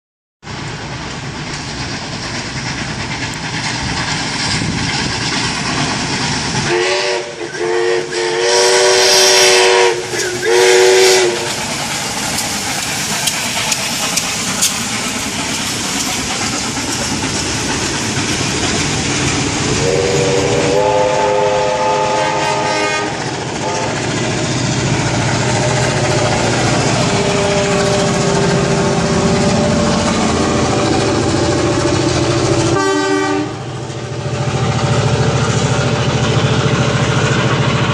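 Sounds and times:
steam train passing: 0:00.4 - 0:37.9
train horn call: 0:06.7 - 0:11.5, 0:19.8 - 0:24.0, 0:25.6 - 0:33.8
steam whistle blasts: 0:06.7 - 0:11.6, 0:19.8 - 0:24.0, 0:32.7 - 0:33.6.

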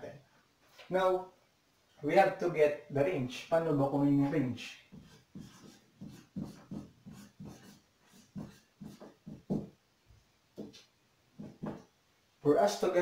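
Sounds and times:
marker writing on whiteboard: 0:04.8 - 0:09.8, 0:10.6 - 0:10.8, 0:11.4 - 0:11.9.

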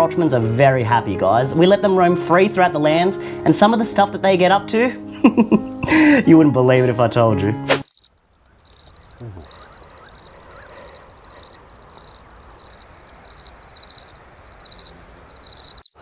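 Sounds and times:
cricket chirping: 0:07.8 - 0:16.0.

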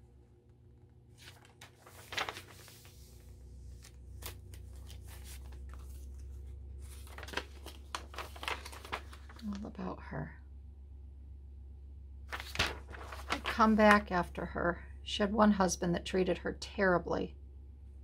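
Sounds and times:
low steady hum: 0:00.0 - 0:18.0
paper pages rustling and crinkling: 0:01.2 - 0:09.7, 0:12.3 - 0:14.1.

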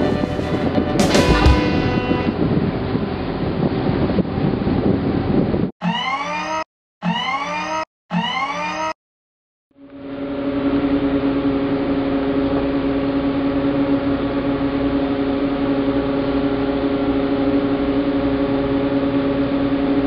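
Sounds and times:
boat machinery hum: 0:00.0 - 0:05.7, 0:09.8 - 0:20.0.

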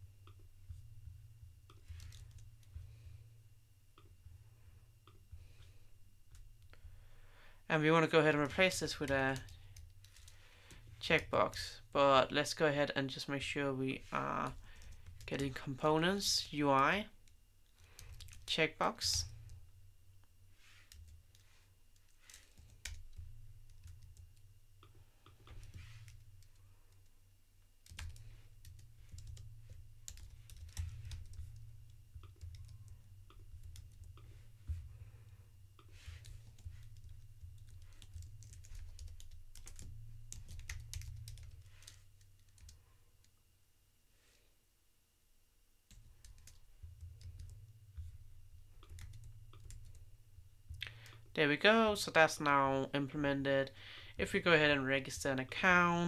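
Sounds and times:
low steady hum: 0:00.0 - 0:56.0
keyboard typing: 0:01.7 - 0:02.8, 0:08.4 - 0:11.6, 0:14.4 - 0:15.6, 0:17.2 - 0:19.6, 0:20.8 - 0:27.1, 0:27.8 - 0:34.4, 0:35.8 - 0:42.8, 0:45.9 - 0:48.2, 0:48.8 - 0:50.0.

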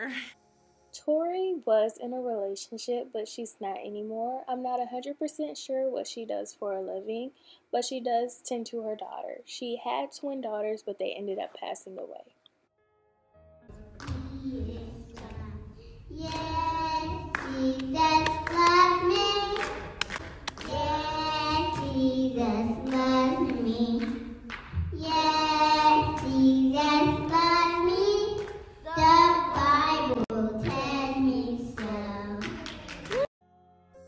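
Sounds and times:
girl singing into a microphone: 0:14.1 - 0:19.7, 0:20.6 - 0:24.2, 0:25.0 - 0:33.2.

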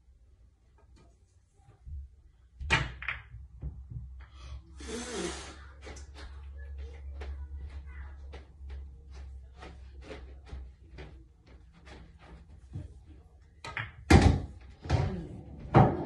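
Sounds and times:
pool balls clicking: 0:02.6 - 0:04.2, 0:13.6 - 0:15.0.

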